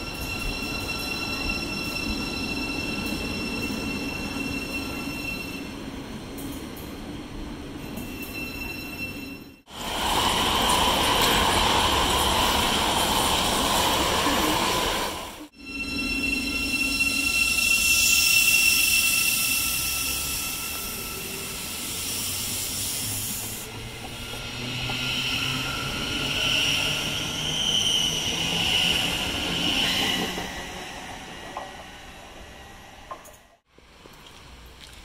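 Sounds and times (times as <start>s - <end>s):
wheels hissing on rail: 9.7s - 30.6s.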